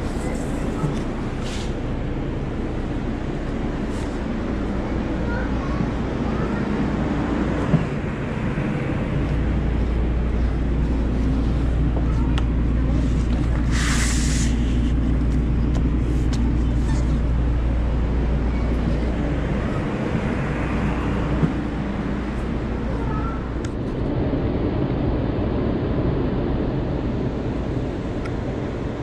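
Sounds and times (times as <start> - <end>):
train motor hum and drone: 0.0 - 29.0
short hiss: 13.7 - 14.7.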